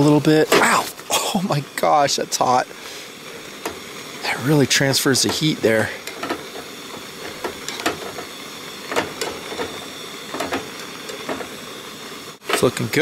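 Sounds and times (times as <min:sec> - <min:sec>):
gas camp stove hissing: 0:00.0 - 0:13.0.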